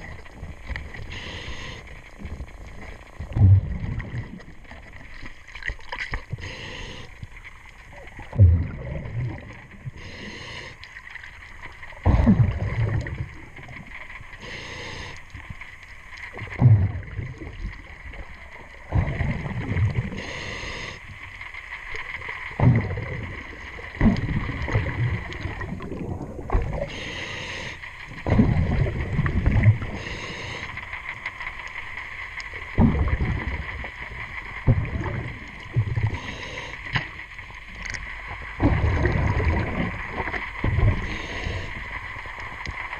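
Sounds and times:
regulator inhale hiss: 0.9s - 2.2s, 6.3s - 7.5s, 9.9s - 11.2s, 14.3s - 15.5s, 20.0s - 21.6s, 26.7s - 28.1s, 29.8s - 31.4s, 36.0s - 37.4s, 40.9s - 42.6s
exhaled bubbles rushing: 2.2s - 6.4s, 7.9s - 10.0s, 11.9s - 13.9s, 16.3s - 20.3s, 22.2s - 26.9s, 28.0s - 30.0s, 32.6s - 36.2s, 38.4s - 42.6s.

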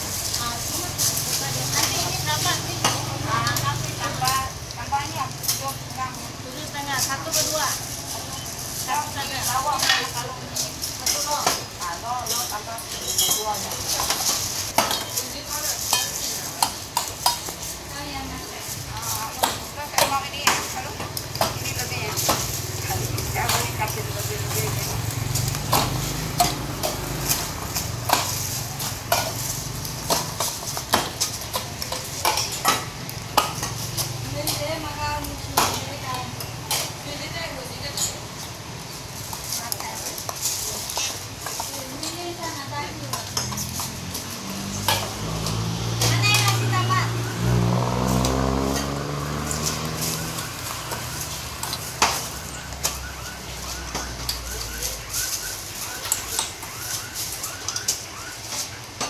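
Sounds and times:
vehicle engine: 0.0s - 11.1s, 13.6s - 58.9s
metal spoon clinking on steel cups: 0.0s - 47.0s, 48.1s - 53.0s, 53.9s - 56.7s.

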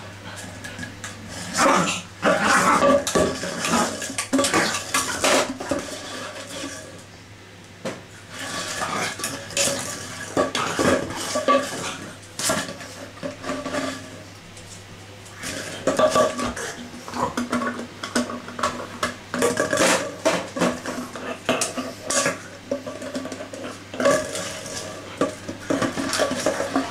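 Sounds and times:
dog chewing plastic bottle: 15.4s - 26.9s
plastic bottle crinkling and clattering: 15.4s - 26.9s.

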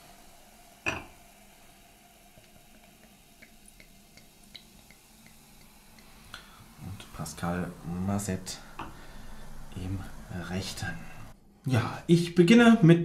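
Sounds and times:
champagne pouring and fizzing: 0.0s - 11.3s.

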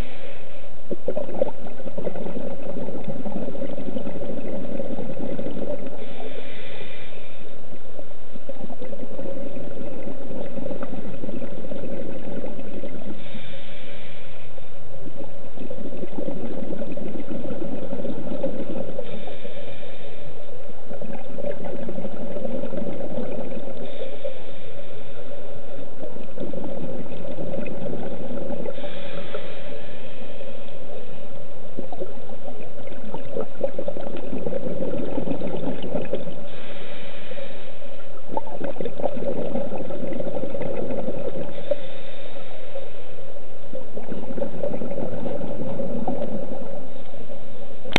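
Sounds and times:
exhaled bubbles rumbling: 0.0s - 47.9s
steady hum: 0.0s - 47.9s
hissing regulator inhalation: 5.9s - 7.6s, 12.8s - 14.7s, 18.9s - 20.6s, 28.4s - 31.4s, 34.6s - 38.2s, 41.3s - 43.3s.

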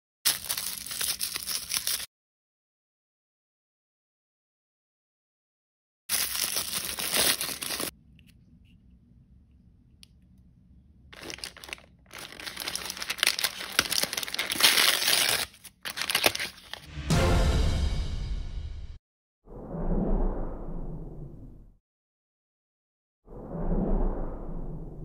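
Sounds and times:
plastic packaging crinkling: 0.3s - 2.1s, 6.1s - 7.9s, 11.1s - 16.9s.

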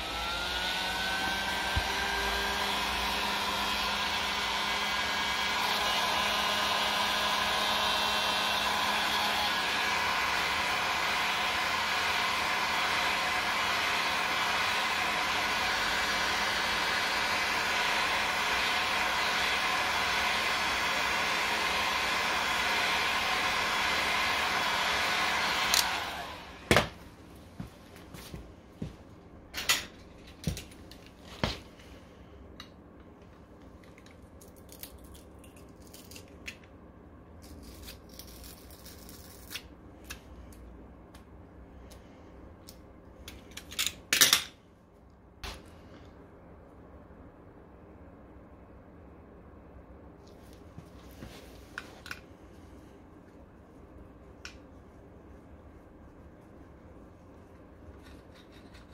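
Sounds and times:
electric motor whirring: 0.0s - 16.7s.

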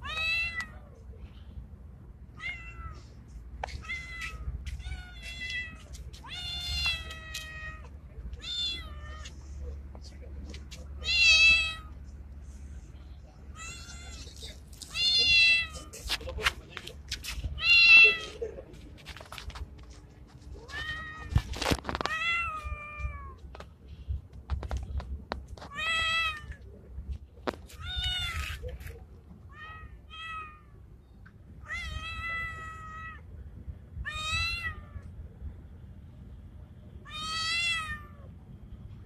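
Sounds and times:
cat meowing: 2.3s - 3.0s, 3.8s - 9.4s, 11.0s - 12.0s, 13.6s - 15.9s, 31.6s - 33.2s, 34.0s - 35.1s, 37.0s - 38.3s.

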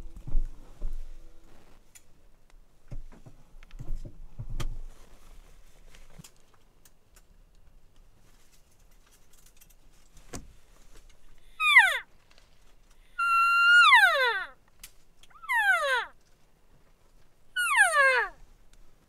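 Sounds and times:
soft knocks and rustles: 2.9s - 6.6s, 8.2s - 11.2s.

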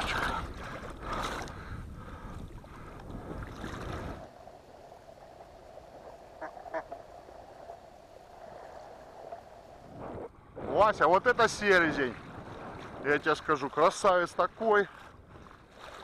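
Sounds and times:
wind noise: 0.0s - 4.3s, 8.4s - 13.5s
water noise: 0.0s - 16.0s.

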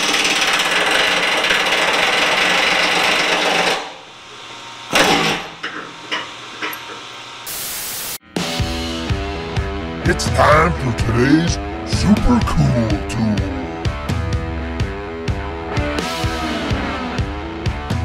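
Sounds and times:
air impact wrench hammering: 0.0s - 3.8s.

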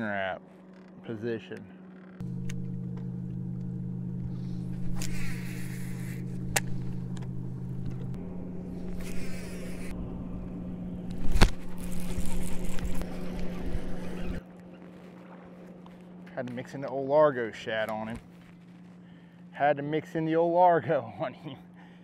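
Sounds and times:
electric trolling motor humming: 1.6s - 16.3s.

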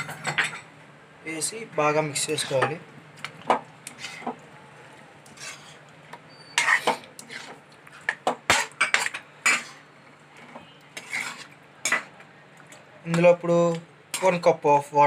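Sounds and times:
spatula scraping metal pan: 2.2s - 2.8s, 3.9s - 4.4s, 5.2s - 9.9s, 10.6s - 12.1s.

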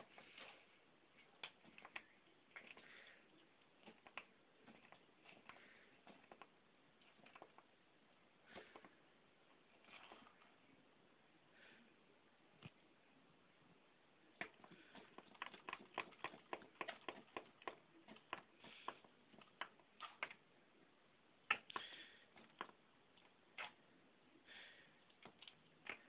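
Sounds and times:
soft rustles: 0.0s - 7.7s.

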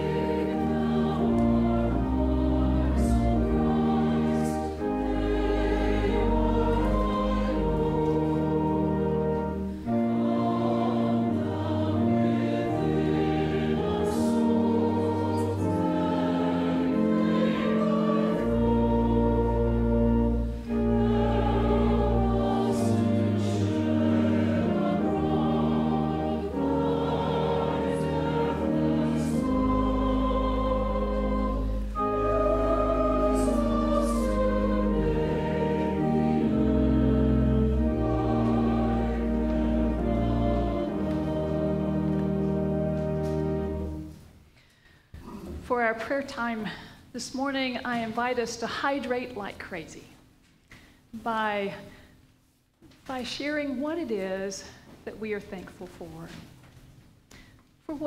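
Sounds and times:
choir singing sustained chords: 0.0s - 44.2s.

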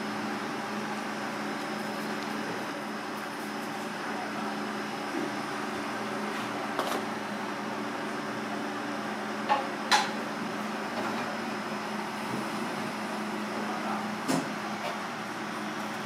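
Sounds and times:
kitchen machinery hum: 0.0s - 16.0s.

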